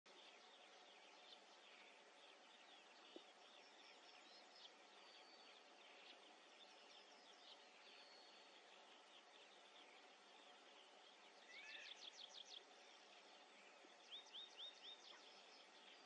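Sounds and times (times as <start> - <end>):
distant small birds chirping: 0.1 - 16.0
steady background hiss: 0.1 - 16.0.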